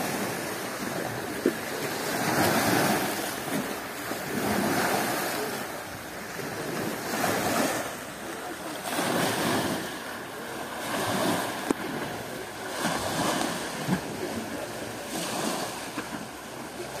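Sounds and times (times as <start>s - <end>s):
waves breaking on pebbly shore: 0.0s - 17.0s.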